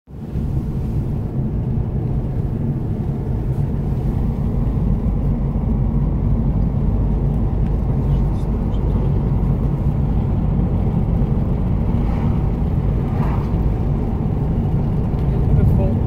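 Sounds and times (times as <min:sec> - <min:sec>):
car road rumble from inside: 0:00.1 - 0:16.0.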